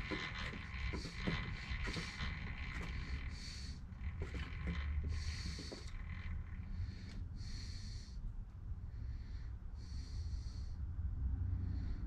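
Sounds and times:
motor humming: 0.0 - 7.8.

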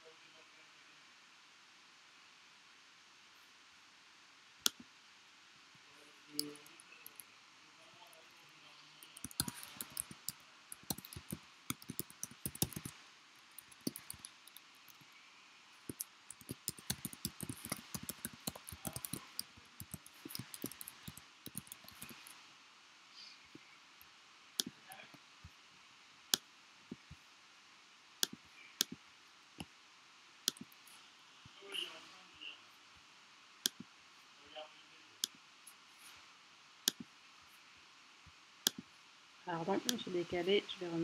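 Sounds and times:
keyboard key clicks: 9.0 - 12.9, 13.6 - 15.0, 15.9 - 22.3.

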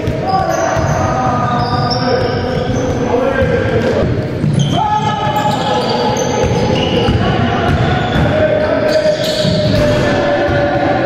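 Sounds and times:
basketball bouncing on wooden court: 0.0 - 8.5.

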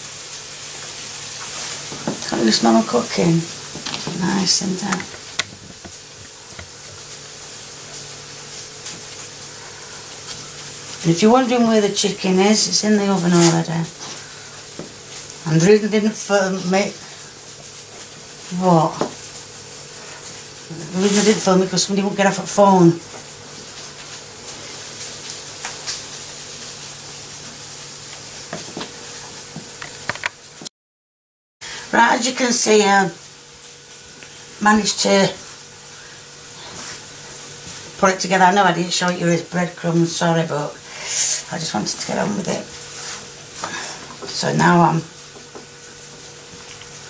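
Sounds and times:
faint steady hum: 0.0 - 28.2, 31.6 - 47.0
steady hiss: 0.0 - 30.6, 31.6 - 47.0
hands rubbing lard into flour: 41.0 - 47.0
hands rubbing flour rustling: 42.8 - 43.7.

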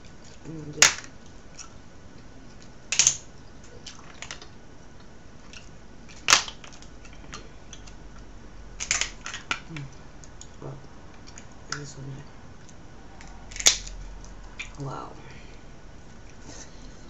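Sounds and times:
shells and fish bones clacking: 2.6 - 10.6, 12.6 - 14.8.

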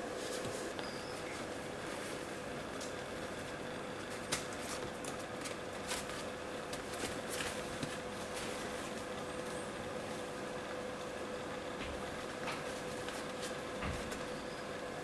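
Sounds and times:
steady hum: 0.0 - 15.0
paws scuffing on paper: 0.1 - 9.6, 12.2 - 14.4.

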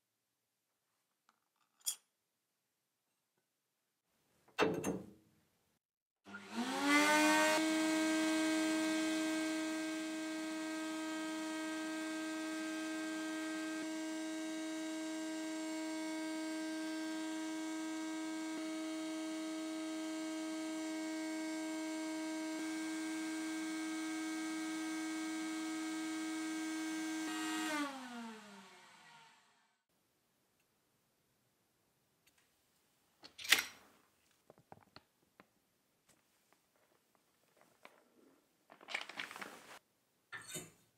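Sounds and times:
power tool motor whining: 6.3 - 29.7.

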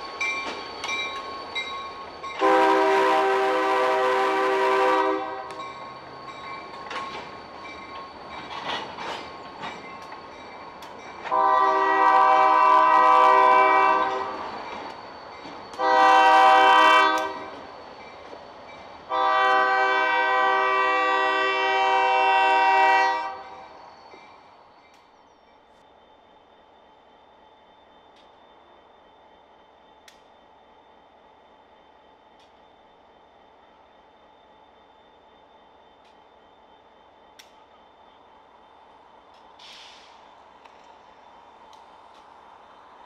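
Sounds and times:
train wheels clicking over rail joints: 0.0 - 2.7, 5.4 - 12.6, 13.9 - 19.1, 37.2 - 37.9, 39.2 - 42.4
locomotive air horn blasts: 2.4 - 5.6, 11.3 - 14.4, 15.8 - 17.5, 19.1 - 23.6.

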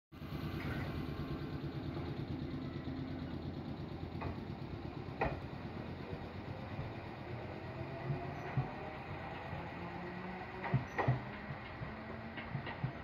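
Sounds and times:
electric train equipment humming: 0.2 - 13.0.

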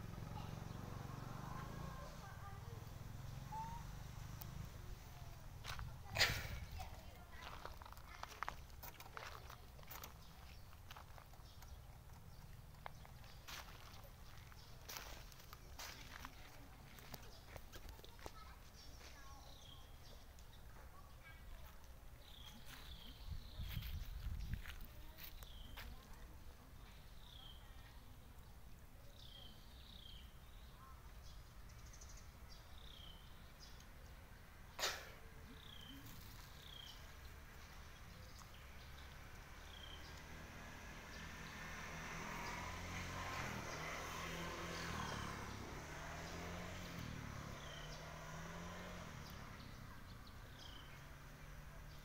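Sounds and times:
faint bird chirps: 3.2 - 4.1.

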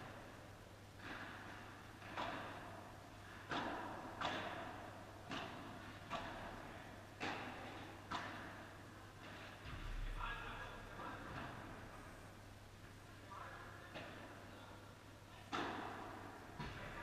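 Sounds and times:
ball hit by rackets: 1.0 - 9.8, 15.5 - 17.0.

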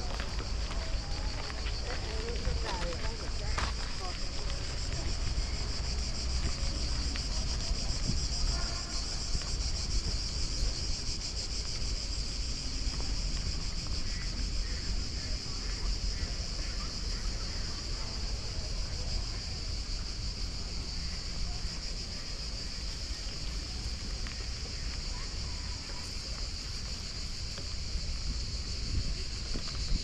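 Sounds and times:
insects buzzing chorus: 0.0 - 30.0
wind rumble on microphone: 27.0 - 30.0.

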